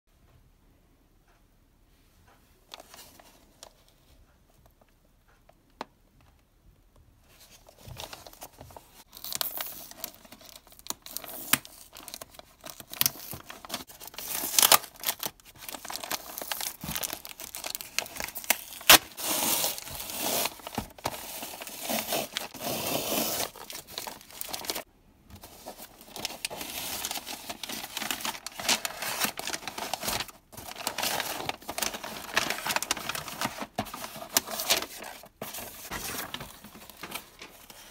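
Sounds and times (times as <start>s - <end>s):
paper crackling: 7.6s - 37.9s
paper tearing: 18.7s - 24.8s.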